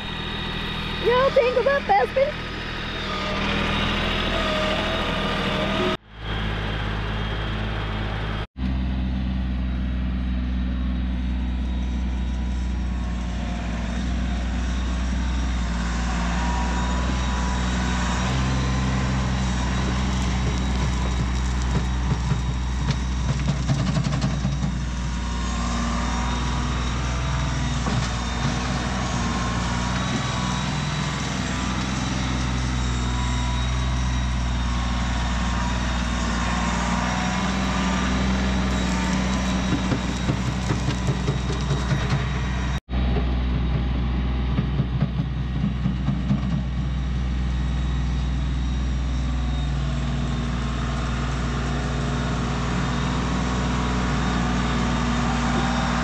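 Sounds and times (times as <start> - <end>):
tractor diesel engine running: 0.0 - 56.0
rattles and knocks: 20.4 - 24.9, 39.5 - 47.0.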